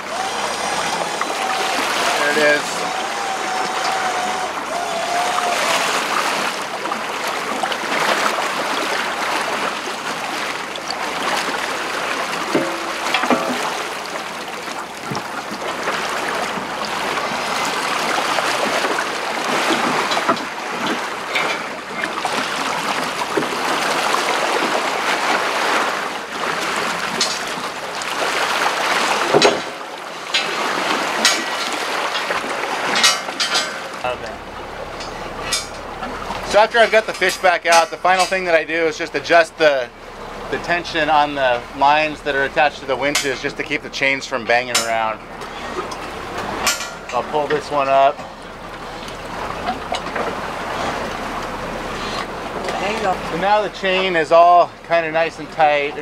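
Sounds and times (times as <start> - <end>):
sea water rushing along hull: 0.0 - 56.0
sharp knocks and clinks: 12.5 - 13.7, 35.0 - 35.9, 36.8 - 38.6, 46.6 - 47.6.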